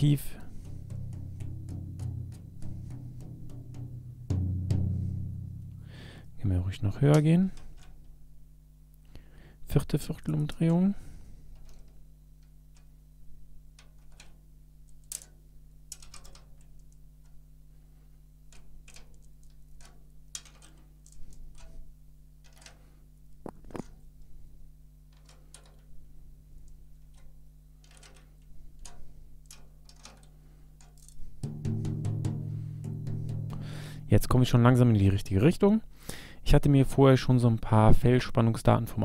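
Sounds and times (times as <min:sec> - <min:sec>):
drum key clicking on tension rods: 0:00.0 - 0:05.9, 0:18.5 - 0:21.8, 0:25.1 - 0:26.0, 0:27.0 - 0:34.8.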